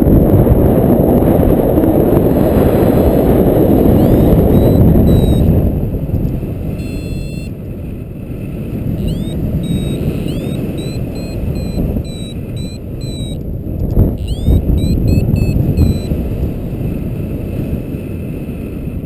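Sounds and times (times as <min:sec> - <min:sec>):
wind buffeting microphone: 0:00.0 - 0:19.0
variometer beeping: 0:03.8 - 0:05.6, 0:06.8 - 0:07.6, 0:09.0 - 0:13.5, 0:14.2 - 0:16.2.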